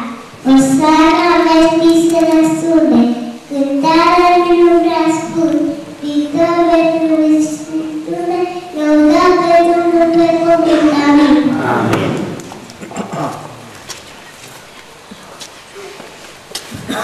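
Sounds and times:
girl singing into a microphone: 0.0 - 11.5.

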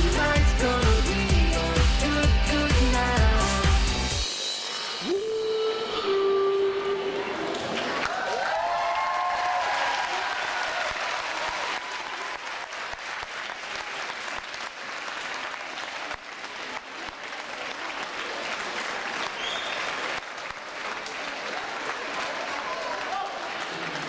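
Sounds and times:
crowd applauding: 7.3 - 24.0.

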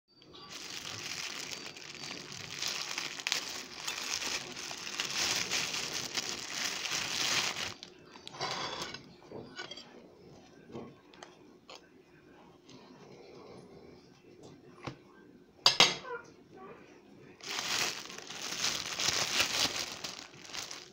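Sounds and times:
plastic bag crinkling: 0.3 - 7.9, 17.4 - 20.9.

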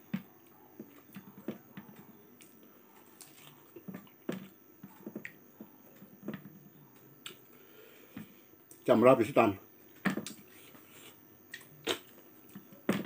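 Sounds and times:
person chewing food: 0.1 - 6.6, 10.2 - 13.0.

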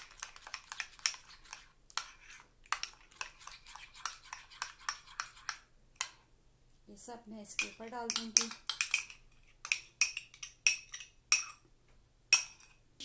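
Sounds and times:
metal spoon stirring in ceramic cup: 0.0 - 6.2, 7.6 - 11.6.

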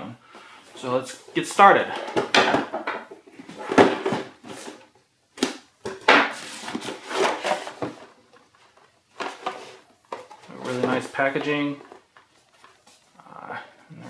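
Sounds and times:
cardboard scraping and rustling: 6.3 - 8.2, 9.2 - 12.9.

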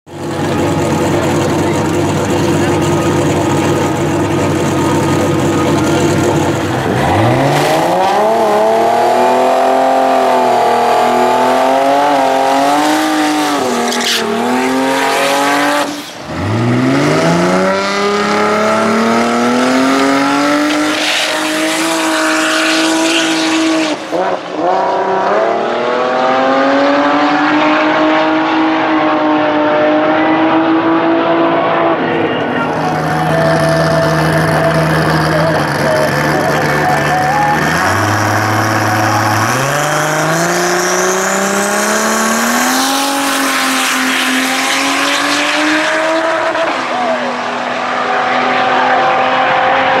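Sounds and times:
drag car engine at full throttle: 0.0 - 50.0.

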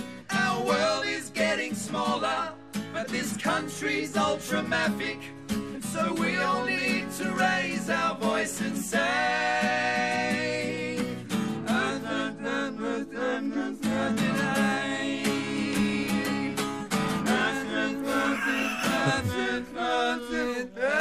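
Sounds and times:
man singing: 17.3 - 21.0
acoustic guitar strumming: 18.0 - 19.6.

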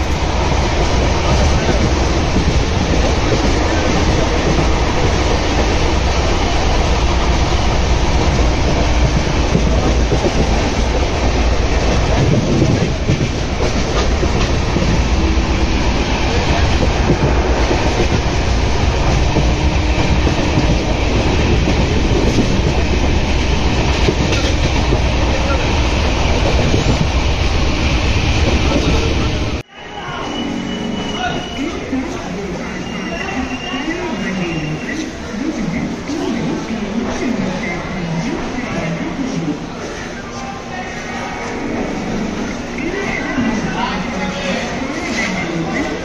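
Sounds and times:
train wheels clattering on rails: 0.0 - 29.6.

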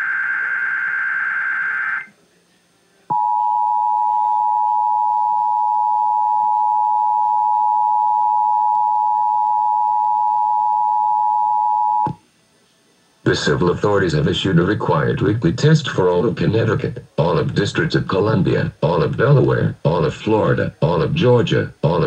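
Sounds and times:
steady two-tone alert signal: 3.1 - 12.2.

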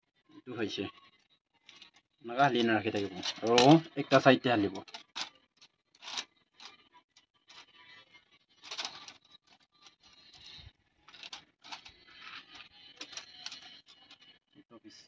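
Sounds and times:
bamboo sticks rustling and clicking: 1.7 - 6.8, 8.6 - 14.3.

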